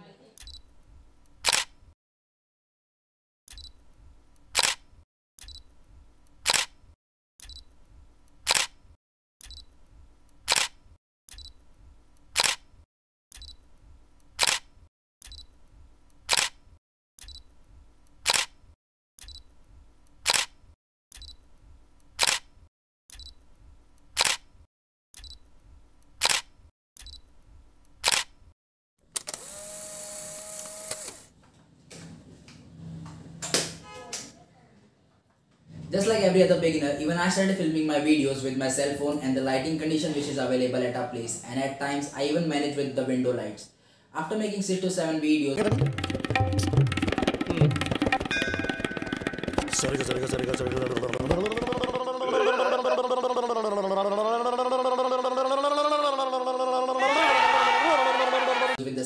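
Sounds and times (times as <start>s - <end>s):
camera shutter clicks: 1.4s - 1.7s, 4.6s - 4.8s, 6.4s - 6.7s, 8.5s - 8.8s, 10.5s - 10.8s, 12.4s - 12.6s, 14.4s - 14.7s, 16.3s - 16.6s, 18.2s - 18.6s, 20.2s - 20.6s, 22.2s - 22.5s, 24.2s - 24.4s, 26.2s - 26.5s, 28.0s - 28.3s.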